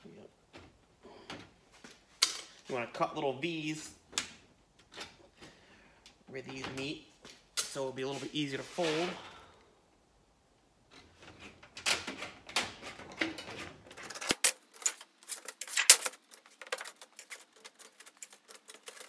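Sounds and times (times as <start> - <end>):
thin metal sheet rattling: 12.7 - 19.0.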